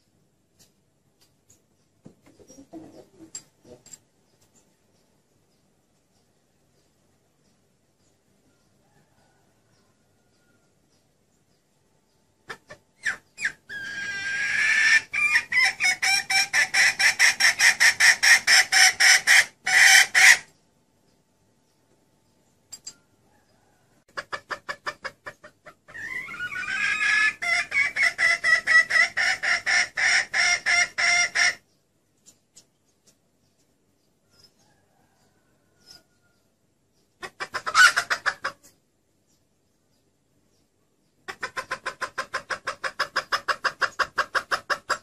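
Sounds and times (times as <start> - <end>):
hen clucking: 0.6 - 5.1, 12.4 - 20.6, 23.3 - 38.8, 41.1 - 45.0.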